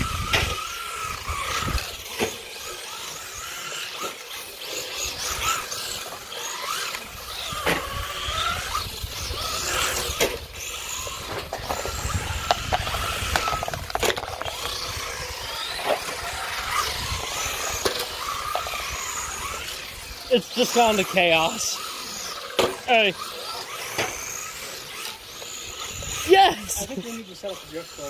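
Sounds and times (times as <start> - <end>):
electric motors whining: 0.0 - 28.0
cars hitting plastic cones: 6.9 - 8.0, 11.2 - 19.0, 22.5 - 25.6.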